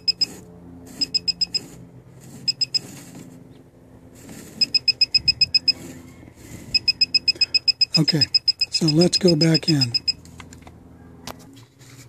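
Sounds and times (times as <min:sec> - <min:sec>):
rapid high-pitched beeping: 0:00.0 - 0:00.4, 0:01.0 - 0:01.7, 0:02.4 - 0:02.9, 0:04.6 - 0:05.8, 0:06.7 - 0:10.2.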